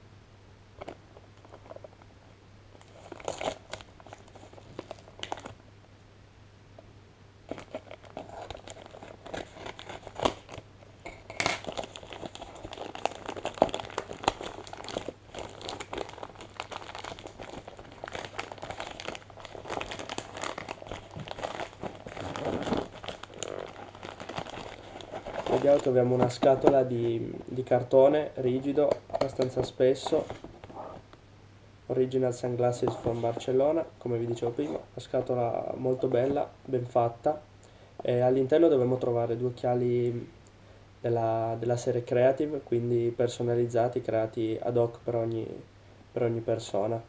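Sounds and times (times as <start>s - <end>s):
plastic bag crinkling and tearing: 2.8s - 5.6s, 7.5s - 27.0s.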